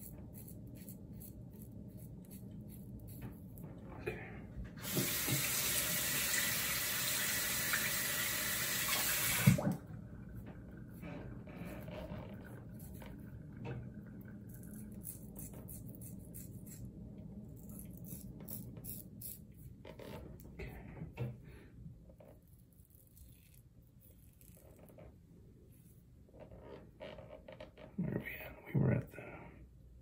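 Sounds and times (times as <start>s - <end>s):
razor scraping beard stubble: 0.0s - 3.6s, 11.7s - 13.0s, 14.5s - 16.9s, 17.5s - 19.7s, 22.3s - 25.0s
steady low hum: 0.0s - 4.8s, 9.4s - 30.0s.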